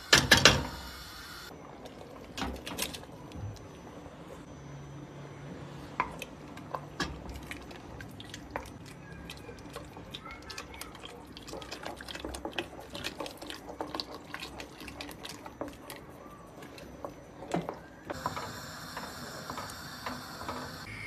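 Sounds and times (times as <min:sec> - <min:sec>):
liquid pouring and splashing into pot: 0:06.1 - 0:18.5.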